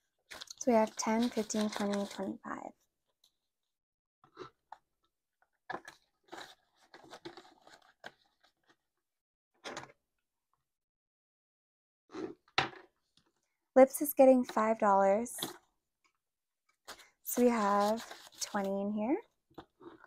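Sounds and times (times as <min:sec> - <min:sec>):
banknotes rustling: 0:00.3 - 0:02.3, 0:16.9 - 0:18.9.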